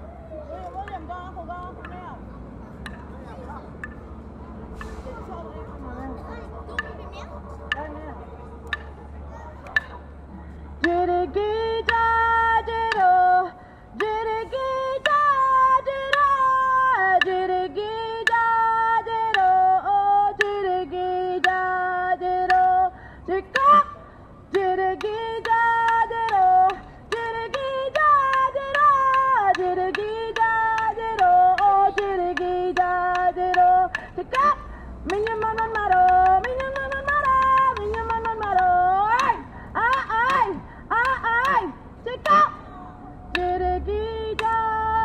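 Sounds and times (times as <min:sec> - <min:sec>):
sharp rhythmic clicks: 0:00.7 - 0:42.6, 0:43.2 - 0:45.0
person singing long notes: 0:10.8 - 0:45.0.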